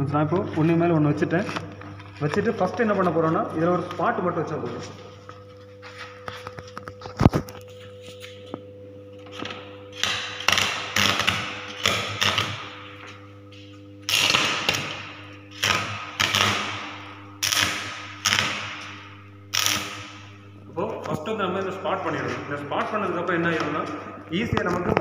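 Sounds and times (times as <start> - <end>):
welding arc crackling: 9.4 - 23.4.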